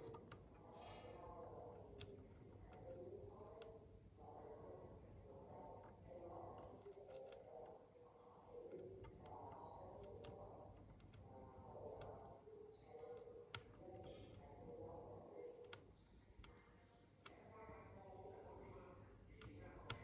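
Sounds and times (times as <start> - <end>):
small tool clicks and ticks: 0.0 - 3.8, 5.8 - 7.8, 8.7 - 14.5, 18.6 - 20.0
faint background murmur: 0.0 - 20.0.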